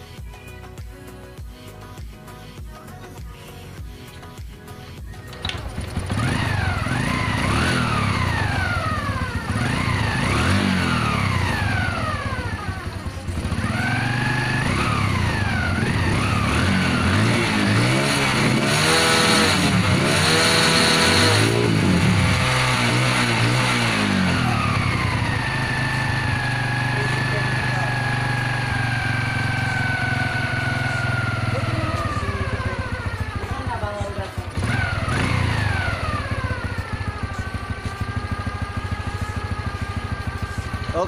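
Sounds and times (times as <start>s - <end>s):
motorcycle engine revving: 5.3s - 41.0s.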